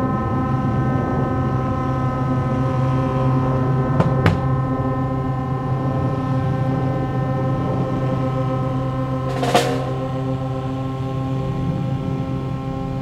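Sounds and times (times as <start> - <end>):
short rushing noise: 9.3 - 10.4
brass ensemble holding chord: 9.3 - 10.6.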